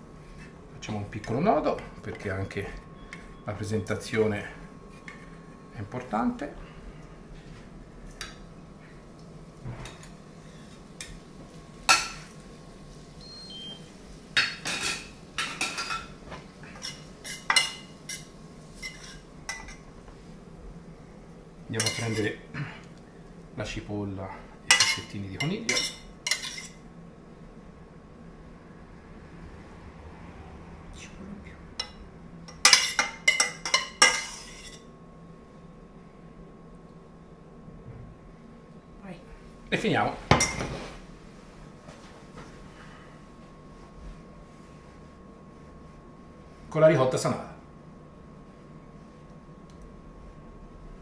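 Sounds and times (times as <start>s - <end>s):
metal tongs clinking on pans: 21.8s - 22.3s, 24.7s - 26.8s, 31.8s - 34.7s.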